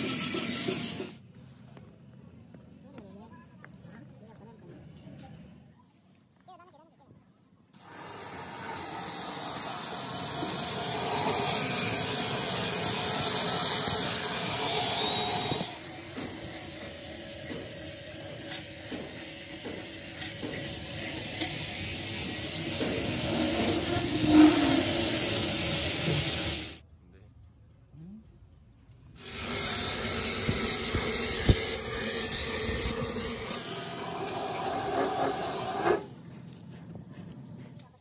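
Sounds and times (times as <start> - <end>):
power grinder grinding metal: 0.0 - 1.2, 7.8 - 26.8, 29.2 - 36.1.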